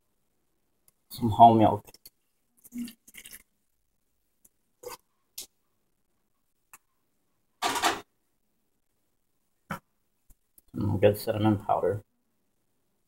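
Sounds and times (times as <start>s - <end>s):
kitchen items clicking and knocking: 7.6s - 8.1s.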